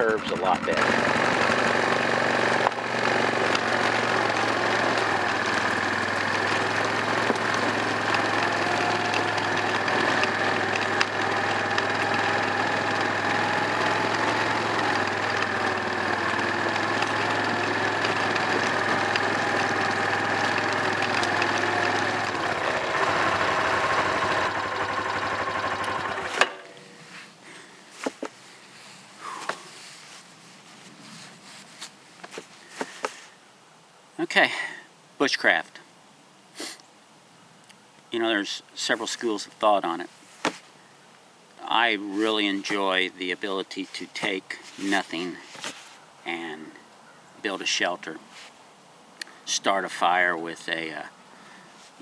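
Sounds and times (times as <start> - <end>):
atv engine running: 0.0 - 28.2.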